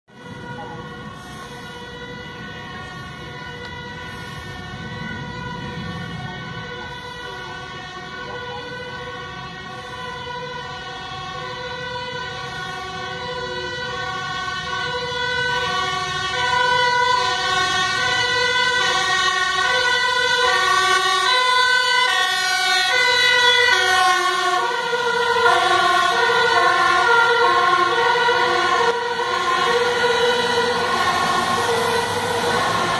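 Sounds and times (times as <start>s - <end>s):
fire engine two-tone siren: 0.1s - 32.9s.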